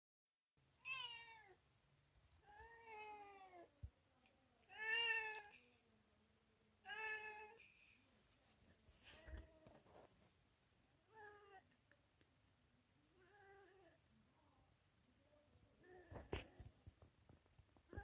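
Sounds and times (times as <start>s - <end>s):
cat meowing: 0.8s - 1.6s.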